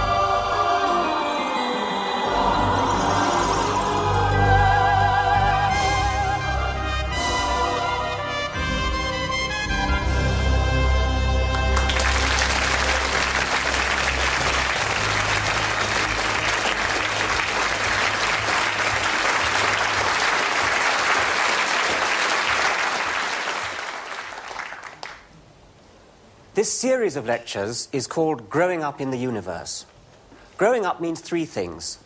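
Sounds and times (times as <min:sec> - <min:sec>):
theme music: 0:00.0 - 0:22.6
audience applauding: 0:11.5 - 0:25.3.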